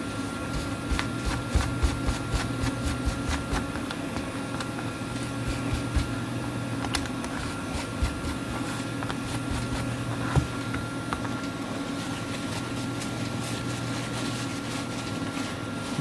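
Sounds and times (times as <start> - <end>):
steady machine hum: 0.0 - 16.0
paper towel rubbing metal: 7.4 - 10.0, 11.9 - 16.0.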